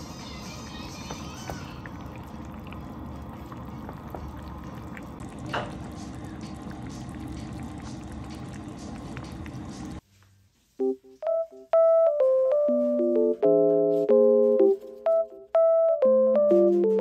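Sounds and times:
liquid in a pot: 0.1s - 10.0s.

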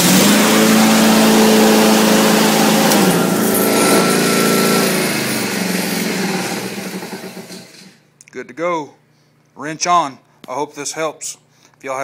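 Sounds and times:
lawn mower engine running: 0.0s - 8.0s.

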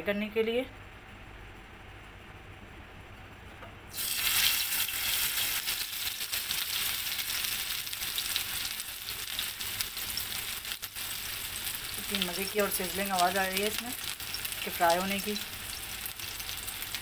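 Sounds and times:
meat patty sizzling in hot oil: 3.9s - 17.0s.

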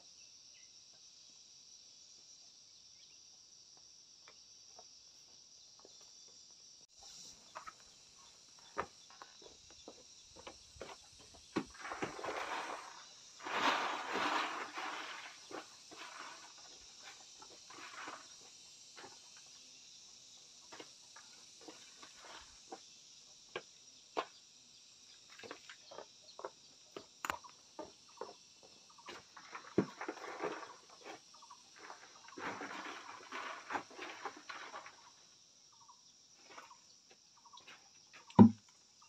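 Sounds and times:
high-pitched insect hum: 0.0s - 39.0s
scraping or rustling: 11.6s - 19.2s, 29.1s - 35.2s.

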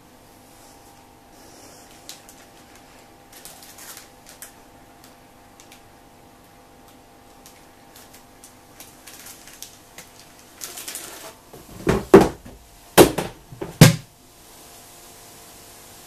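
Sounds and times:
plastic bag crinkling: 1.8s - 5.9s, 6.7s - 12.3s
plastic box knocking on table: 11.6s - 14.1s.

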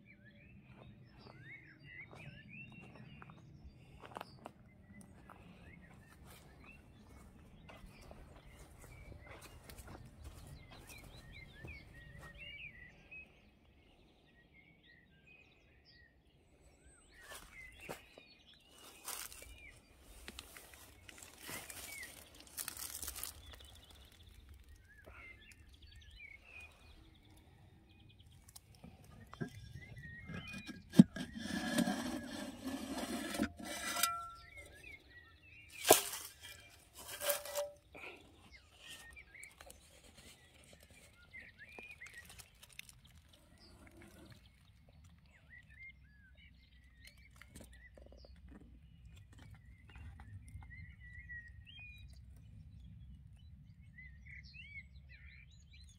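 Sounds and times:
small birds chirping: 0.0s - 55.9s
rustling over dry leaves: 18.7s - 27.5s, 35.7s - 45.3s.

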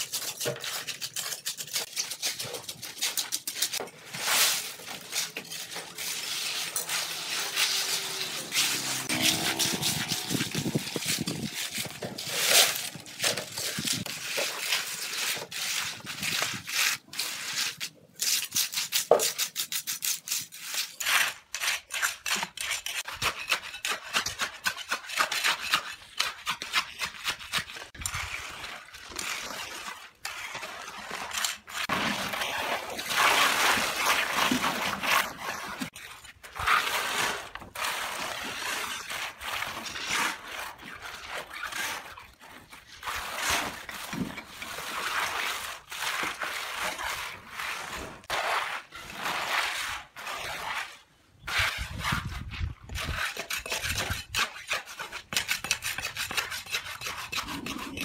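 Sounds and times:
trowels scraping wet concrete: 0.0s - 58.0s.

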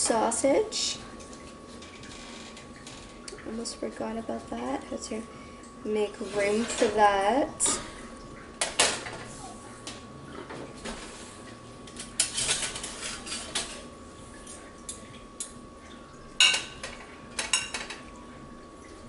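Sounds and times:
dishes clinking: 16.4s - 18.0s.

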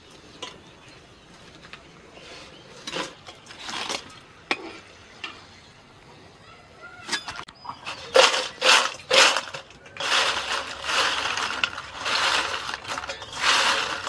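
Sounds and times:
potato chips rustling: 7.9s - 14.0s.

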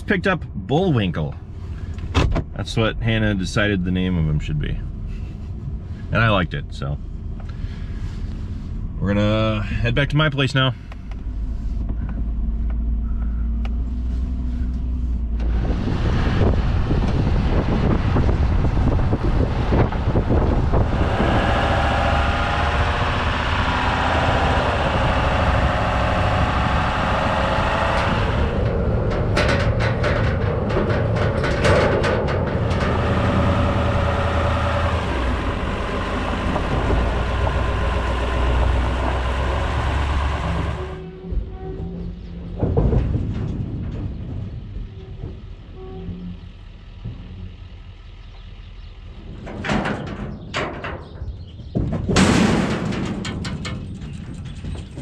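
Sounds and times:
truck engine and road noise: 0.0s - 55.0s
rattling knocks: 16.3s - 47.8s, 49.2s - 55.0s.

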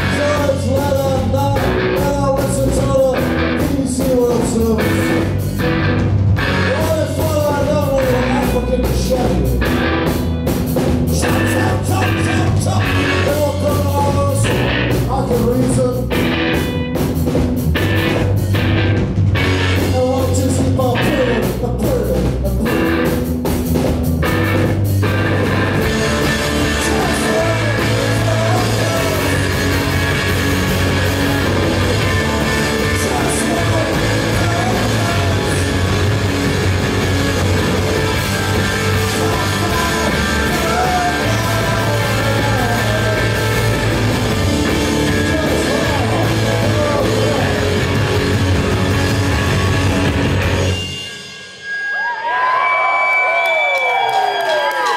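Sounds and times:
man singing: 0.0s - 5.4s, 6.4s - 9.8s, 11.1s - 16.3s, 19.6s - 23.2s, 25.7s - 48.4s
rock band playing live: 0.0s - 54.9s
cymbals ringing: 50.6s - 52.5s.

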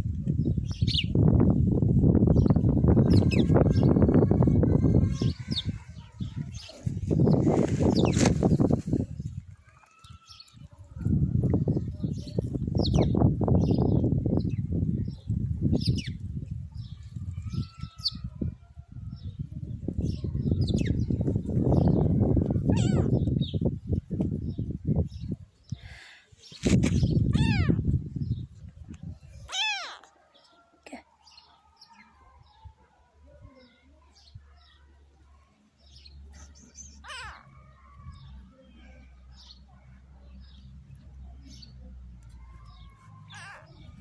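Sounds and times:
small birds chirping: 0.0s - 1.6s, 2.2s - 18.6s, 19.2s - 44.0s
high bird chirps: 26.9s - 27.8s
kitten mewing: 29.5s - 30.1s.

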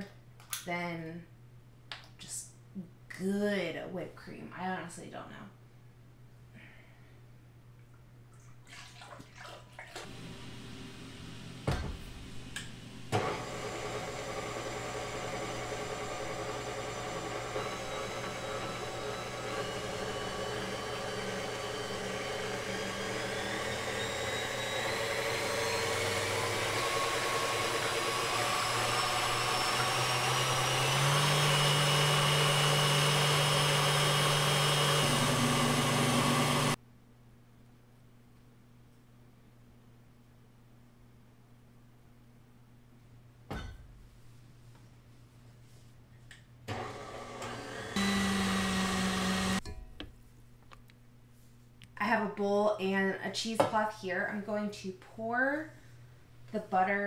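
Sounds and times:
stand mixer whisking cream: 13.2s - 36.8s, 46.7s - 49.6s.

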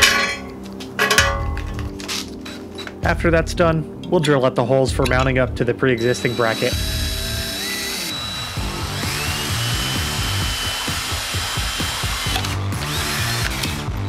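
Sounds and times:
drill boring through metal: 6.0s - 14.0s.

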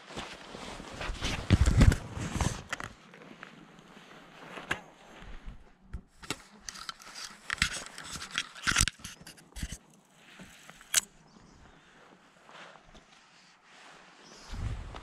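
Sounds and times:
clothing rustling: 0.0s - 14.8s
fishing gear clicking: 6.1s - 11.1s.

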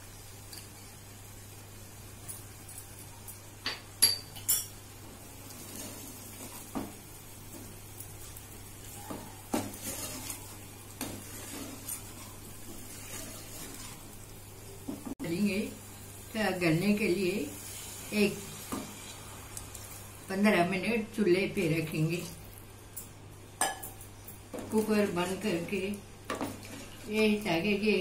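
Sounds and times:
spoon scraping pot: 9.1s - 14.1s.

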